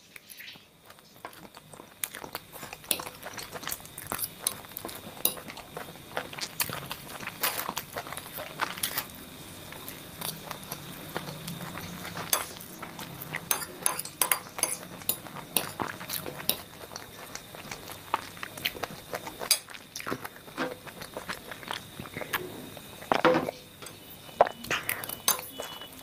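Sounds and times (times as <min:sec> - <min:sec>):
chewing and slurping: 0:00.2 - 0:23.2, 0:23.8 - 0:26.0.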